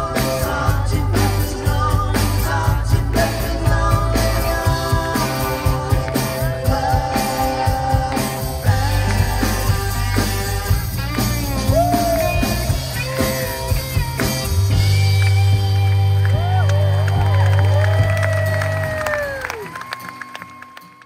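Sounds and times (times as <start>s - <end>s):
person singing: 0.0s - 14.0s
bass guitar: 0.0s - 20.3s
drums: 0.0s - 21.0s
electric guitars: 0.0s - 21.0s.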